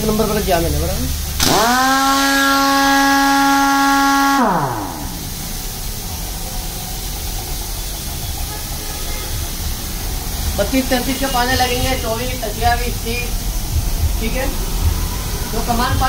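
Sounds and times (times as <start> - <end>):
air hiss: 0.0 - 16.0
pneumatic impact wrench whine: 1.2 - 8.1.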